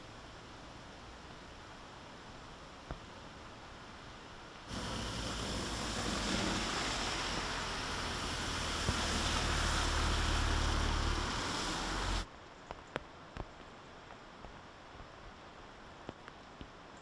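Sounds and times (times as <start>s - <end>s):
car engines humming: 4.7s - 12.2s
tyres splashing through floodwater: 4.7s - 12.3s.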